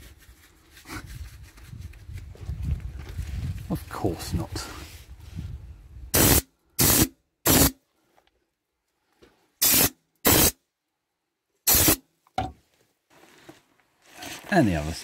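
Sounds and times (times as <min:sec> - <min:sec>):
spray gun hissing bursts: 0:06.2 - 0:07.7, 0:09.6 - 0:10.6, 0:11.7 - 0:12.0.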